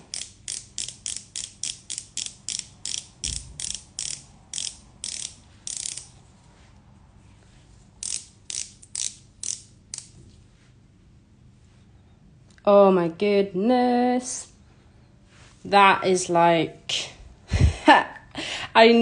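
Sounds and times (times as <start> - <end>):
oil pen ratchet clicks: 0.1 - 6.1, 8.0 - 10.1.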